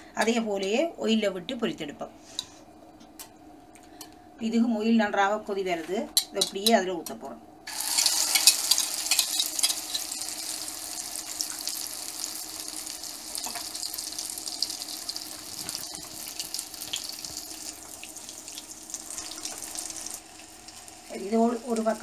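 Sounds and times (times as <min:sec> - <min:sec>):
egg frying in oil sizzling: 0:07.7 - 0:22.0.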